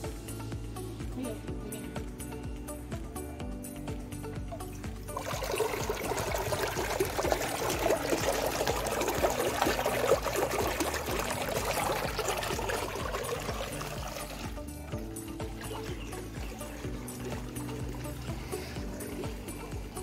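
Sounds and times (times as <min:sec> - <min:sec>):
water splashing from drain pipe: 0:04.3 - 0:20.0.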